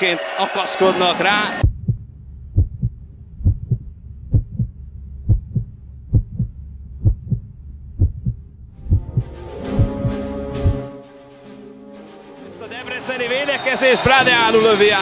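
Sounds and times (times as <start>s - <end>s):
heartbeat thumps: 1.6s - 10.9s.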